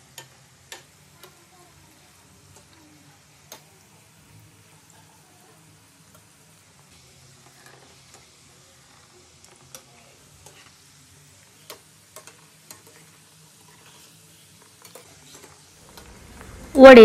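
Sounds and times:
skimmer clicking in pan: 0.0 - 1.4, 3.4 - 3.8, 11.5 - 14.0
food sizzling in hot oil: 0.0 - 17.0.

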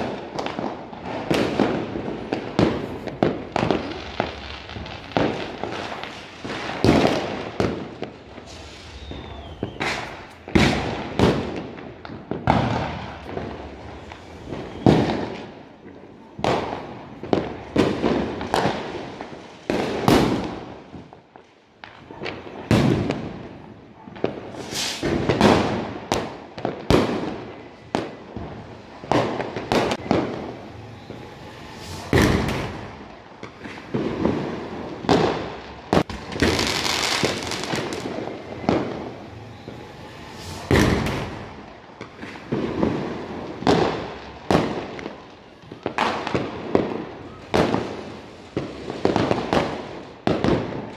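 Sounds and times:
fireworks and firecrackers banging: 0.0 - 50.9
hissing crackle: 1.8 - 11.2, 28.6 - 45.6.

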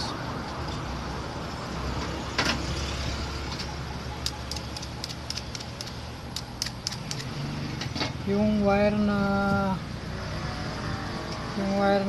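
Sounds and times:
clicks and taps of small parts: 3.6 - 7.3.

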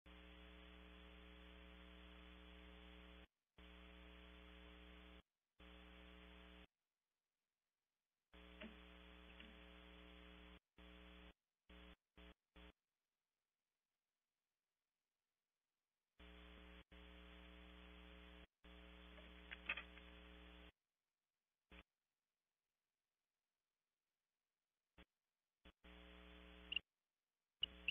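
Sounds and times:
electrical mains hum: 8.4 - 12.7.

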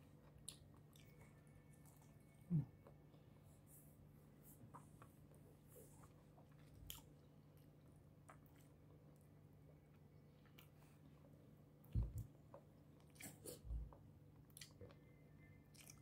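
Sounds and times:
person chewing: 0.2 - 2.1, 15.7 - 16.0
person humming: 2.5 - 2.7.

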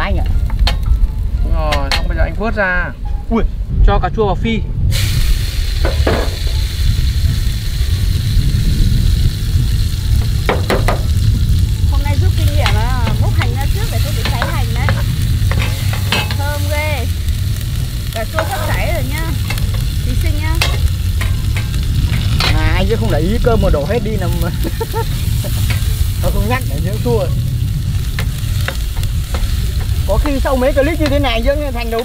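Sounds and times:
steady low rumble: 0.0 - 32.0
tomatoes sizzling in hot oil: 4.9 - 32.0
stirring in pan: 12.3 - 32.0.

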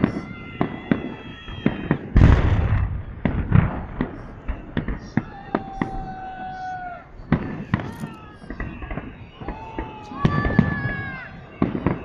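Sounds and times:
heavy firework boom: 0.0 - 6.0
fireworks bursting with sharp bangs: 0.0 - 12.0.

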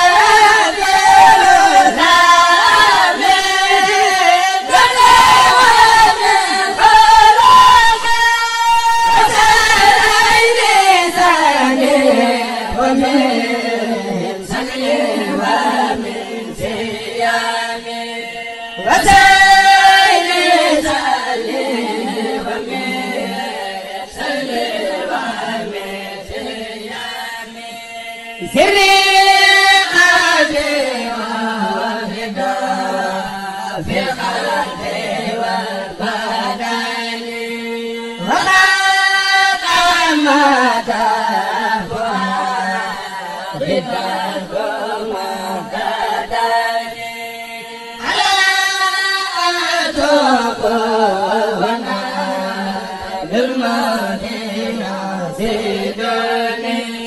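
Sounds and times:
group chanting in unison: 0.0 - 57.0.

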